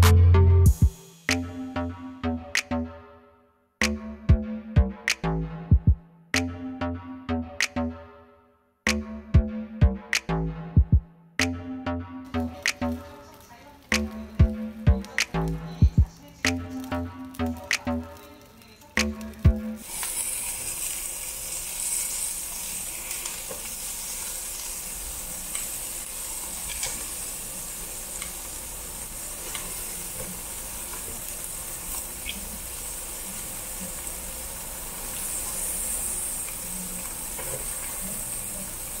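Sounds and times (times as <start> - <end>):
meat sizzling on a grill: 12.3 - 39.0.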